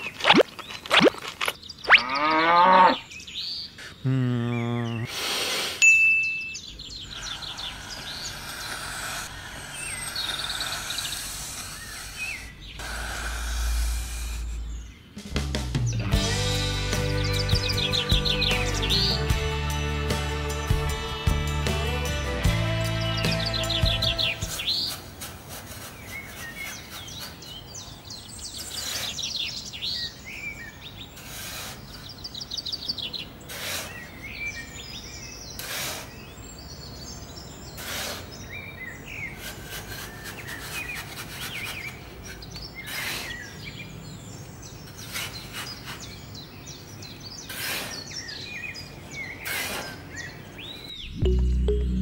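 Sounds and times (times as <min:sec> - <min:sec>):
small birds chirping: 0:00.0 - 0:19.8, 0:22.5 - 0:52.0
sand being scooped: 0:24.3 - 0:27.4, 0:33.5 - 0:34.0, 0:35.6 - 0:36.2, 0:39.1 - 0:42.0, 0:47.4 - 0:48.1.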